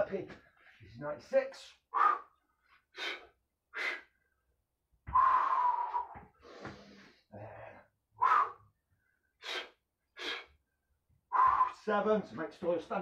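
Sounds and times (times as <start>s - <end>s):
man breathing hard: 1.9s - 4.2s, 5.1s - 10.7s.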